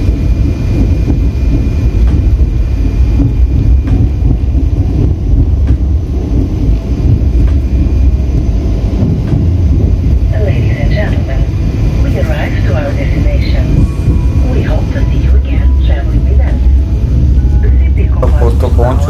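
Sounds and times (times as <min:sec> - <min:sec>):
train rumbling on rails: 0:00.0 - 0:19.0.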